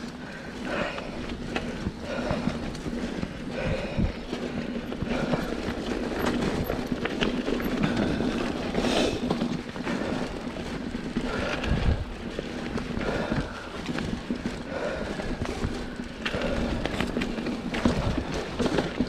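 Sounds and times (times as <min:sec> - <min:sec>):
bike rattling and knocking: 0:00.0 - 0:19.0
bike tyres rolling over dirt: 0:00.0 - 0:19.0.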